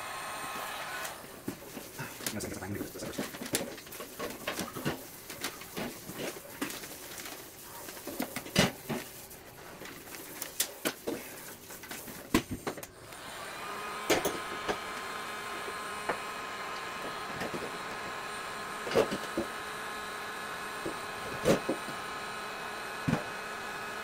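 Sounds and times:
heat gun fan whine: 0.0s - 24.0s
plastic tubing rustling: 1.2s - 12.9s.

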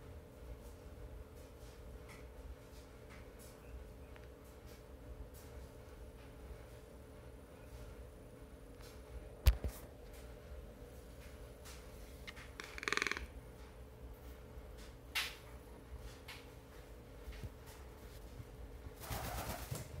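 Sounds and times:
toucan rattling croak: 12.3s - 13.4s
bird wingbeats: 18.9s - 20.0s.

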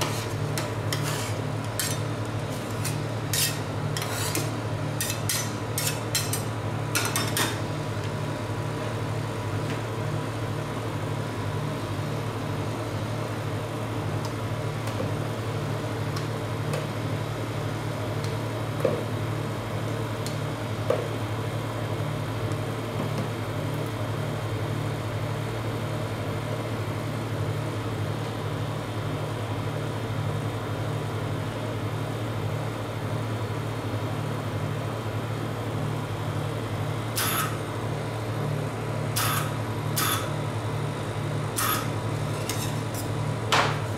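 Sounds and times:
refrigeration unit humming: 0.0s - 43.9s.

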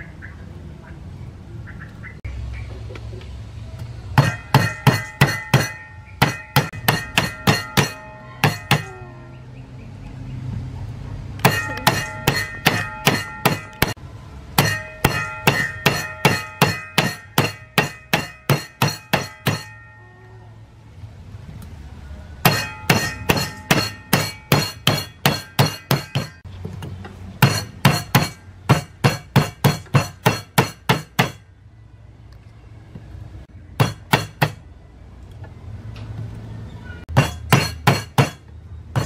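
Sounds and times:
knife blade striking on wooden board: 4.2s - 9.0s, 11.4s - 14.0s, 14.6s - 19.8s, 22.4s - 26.4s, 27.4s - 31.4s, 37.1s - 38.4s.

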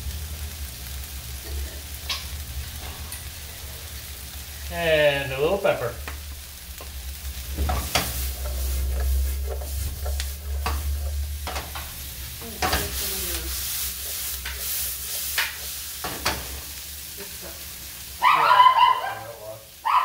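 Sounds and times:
food sizzling in frying pan: 0.0s - 20.0s
utensil scraping pan: 7.4s - 16.7s.

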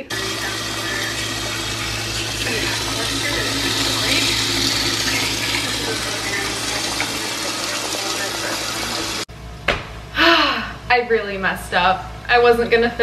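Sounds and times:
vegetables sizzling in a skillet: 0.0s - 9.3s
low steady hum: 0.0s - 13.0s.

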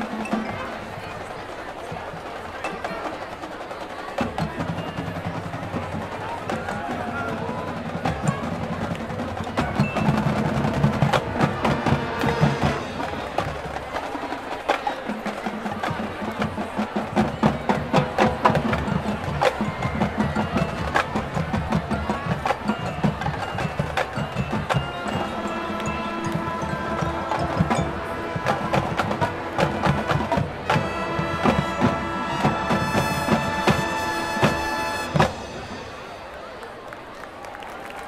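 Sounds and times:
drum and percussion strokes: 0.0s - 36.4s
mallet percussion: 7.9s - 14.0s, 17.7s - 36.1s.

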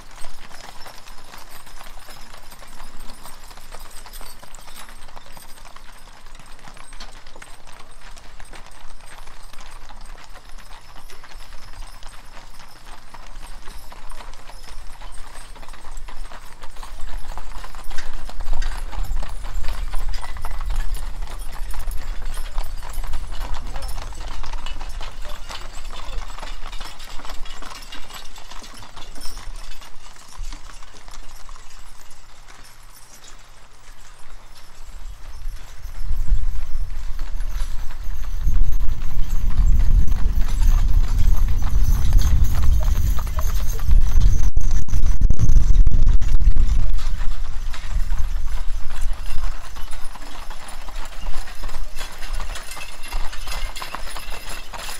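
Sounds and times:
hooves clip-clopping on gravel: 0.0s - 54.9s
low rumble: 38.7s - 47.5s.

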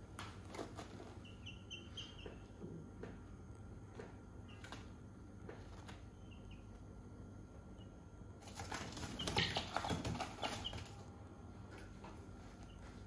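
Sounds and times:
chicken flapping wings: 8.4s - 11.0s.

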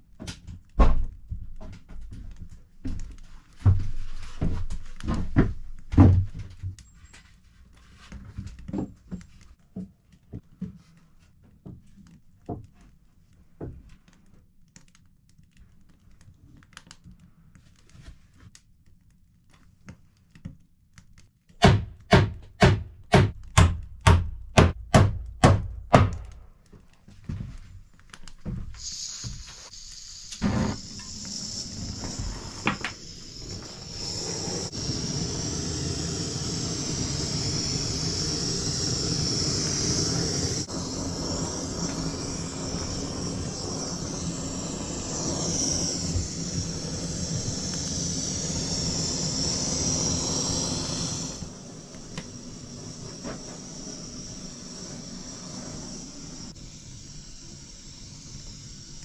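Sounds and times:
blowtorch hissing: 28.5s - 59.0s.

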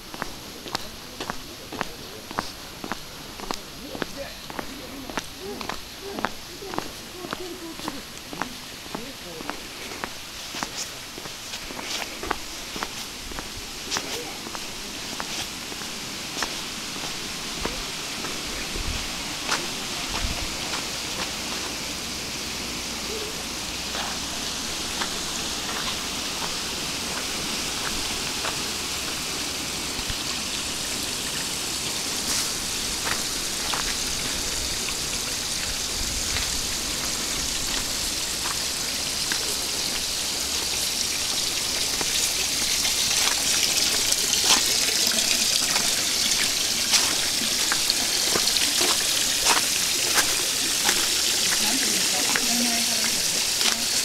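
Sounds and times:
water trickling into stone basins: 0.0s - 54.0s.

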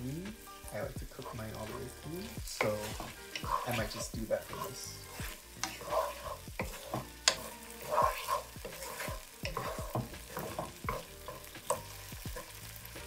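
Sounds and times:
onions sizzling in oil: 0.0s - 13.0s
spatula scraping in a wok: 0.4s - 13.0s
spatula knocking against pan: 6.6s - 11.9s.

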